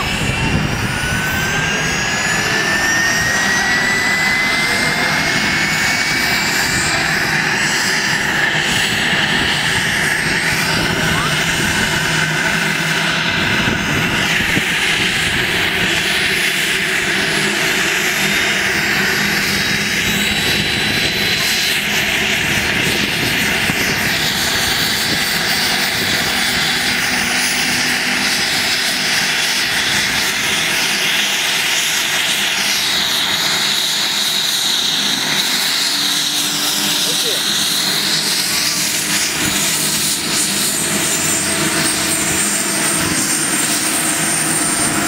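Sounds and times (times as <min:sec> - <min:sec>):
helicopter engines and rotor: 0:00.0 - 0:45.0
turbine whine rising in pitch: 0:00.0 - 0:45.0.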